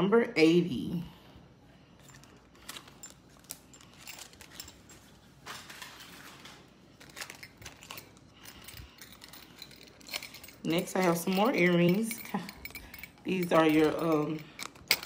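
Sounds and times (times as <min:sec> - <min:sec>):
metal earrings clinking: 0:02.0 - 0:05.2, 0:06.9 - 0:15.0
card backings rustling: 0:02.0 - 0:10.4.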